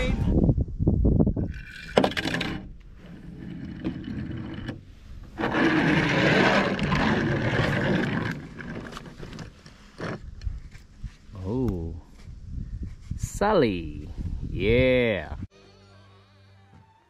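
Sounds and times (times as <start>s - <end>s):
toy car wheels rolling on table: 1.6s - 10.2s.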